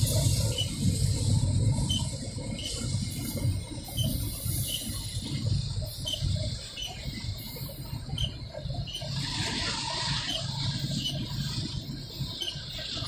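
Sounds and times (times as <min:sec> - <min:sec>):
freight train wheels rumbling: 0:00.0 - 0:13.0
short high wheel squeaks: 0:00.5 - 0:00.8, 0:01.8 - 0:02.8, 0:08.0 - 0:09.4, 0:10.2 - 0:11.5, 0:12.3 - 0:12.8.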